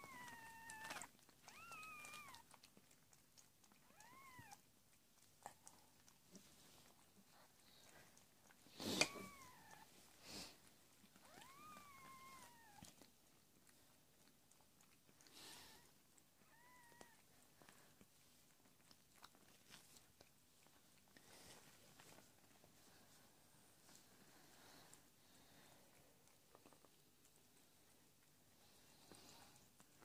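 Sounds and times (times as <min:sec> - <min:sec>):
cat mewing: 0:00.0 - 0:02.4, 0:08.8 - 0:09.8
soft licking: 0:00.0 - 0:30.0
rustling: 0:16.5 - 0:30.0.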